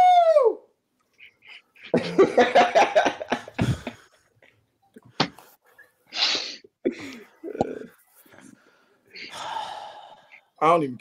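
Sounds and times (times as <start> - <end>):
men laughing over video call: 1.2 - 4.3
breathy exhale: 8.5 - 10.4.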